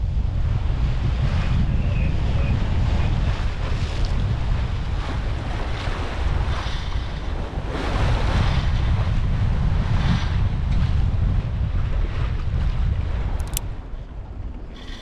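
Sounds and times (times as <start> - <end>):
water rushing along hull: 0.0 - 15.0
wind buffeting microphone: 0.0 - 15.0.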